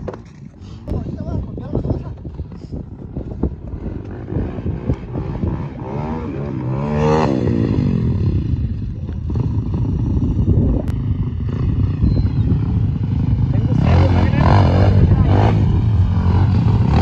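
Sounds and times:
dirt bike engines running: 0:00.0 - 0:17.0
dirt bike engine revving: 0:03.4 - 0:17.0.

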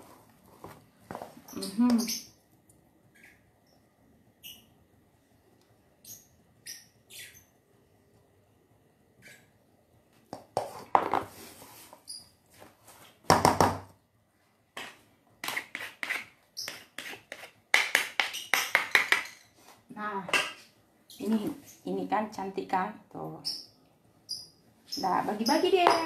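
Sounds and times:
wooden spatula scraping in bowl: 0:14.8 - 0:17.6.

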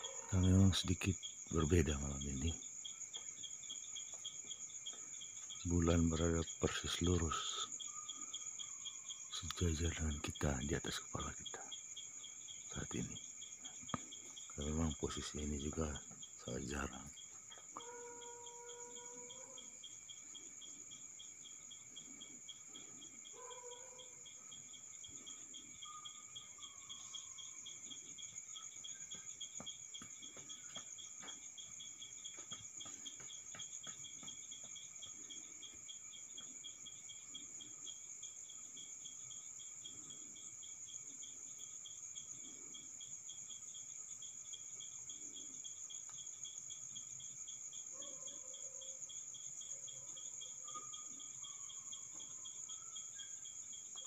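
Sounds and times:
crickets and insects trilling: 0:00.0 - 0:54.0
rapidly pulsing insect trill: 0:00.0 - 0:54.0.

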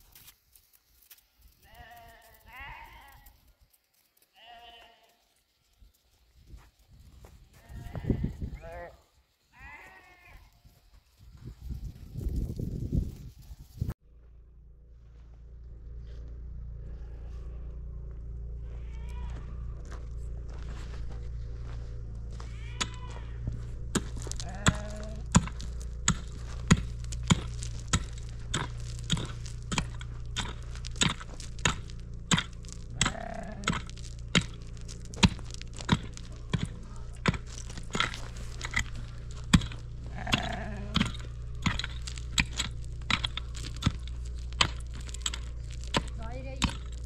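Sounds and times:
mattock striking rocky ground: 0:18.4 - 0:47.0.

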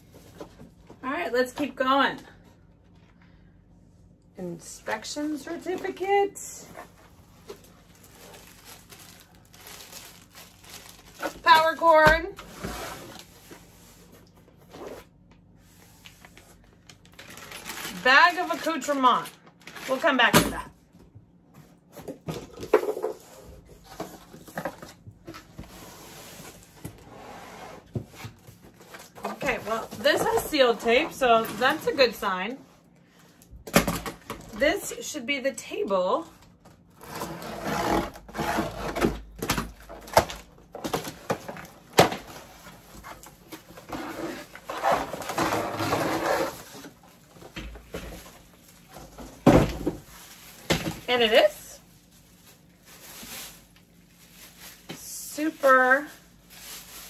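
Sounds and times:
cardboard scraping and rustling: 0:05.1 - 0:16.6, 0:21.9 - 0:32.3, 0:37.0 - 0:51.5.

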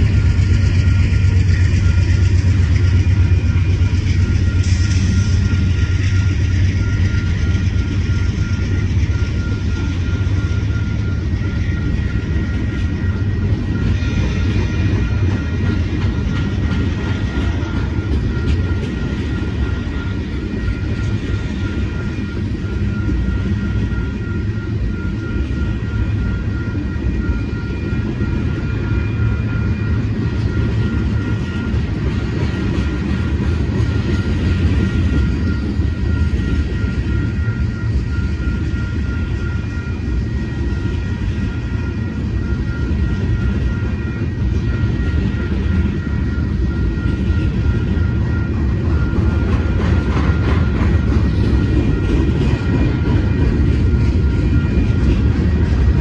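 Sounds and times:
crossing bell ringing: 0:00.0 - 0:56.0
train wheels rumbling on rails: 0:00.0 - 0:56.0.

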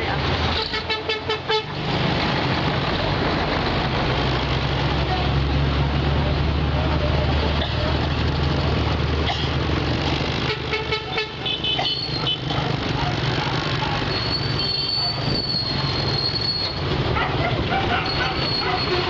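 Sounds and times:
car horn toot: 0:10.5 - 0:12.5
high thin squeal: 0:14.1 - 0:16.8, 0:18.0 - 0:19.0.

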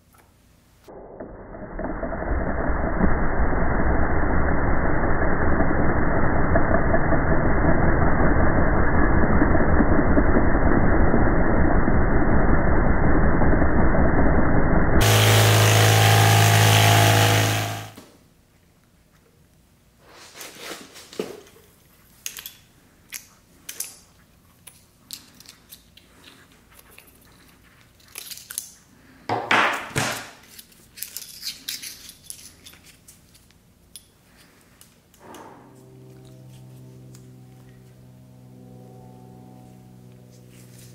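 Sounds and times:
vibratory tumbler running: 0:00.9 - 0:18.0, 0:35.2 - 0:40.9.

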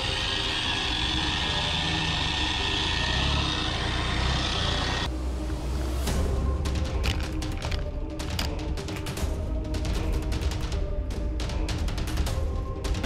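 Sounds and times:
off-road engine running: 0:00.0 - 0:10.4.

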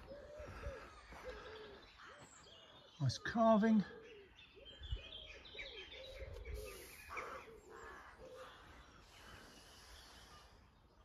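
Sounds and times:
bird cooing: 0:00.0 - 0:02.8, 0:03.8 - 0:09.3
harsh caw-like bird call: 0:06.6 - 0:10.7.

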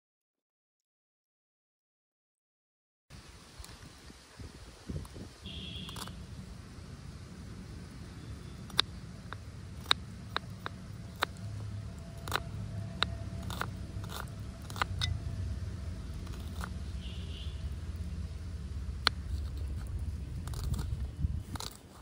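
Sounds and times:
low steady rumble: 0:04.4 - 0:22.0
sharp crisp clicks and crunches: 0:05.9 - 0:06.2, 0:08.6 - 0:15.2, 0:16.1 - 0:17.1, 0:19.0 - 0:22.0.

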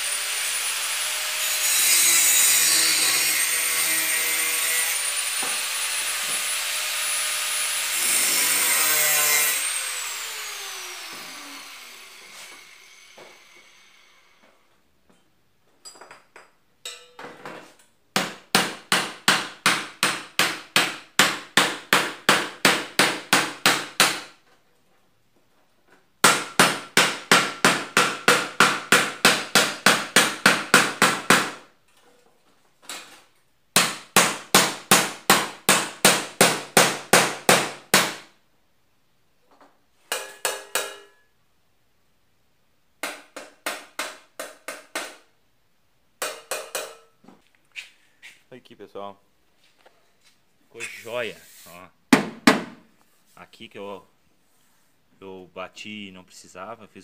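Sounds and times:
hammer striking sheet metal: 0:40.1 - 0:41.2, 0:46.2 - 0:47.1.

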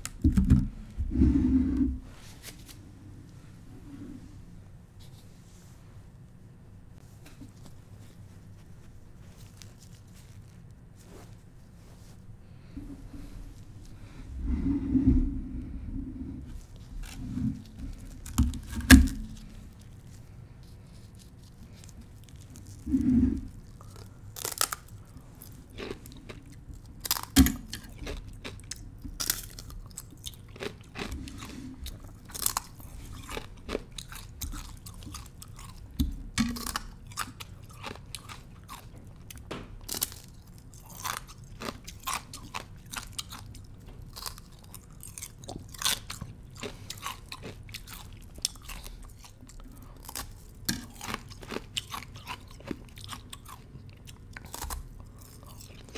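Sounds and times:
ice being bitten and chewed: 0:21.1 - 0:55.9.

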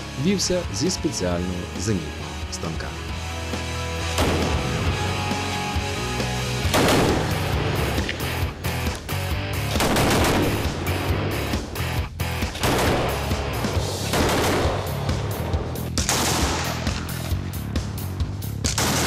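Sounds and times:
background music: 0:00.0 - 0:19.0
automatic rifle firing bursts: 0:06.7 - 0:07.6, 0:09.7 - 0:10.9, 0:12.6 - 0:13.4, 0:14.1 - 0:15.1, 0:18.7 - 0:19.0.

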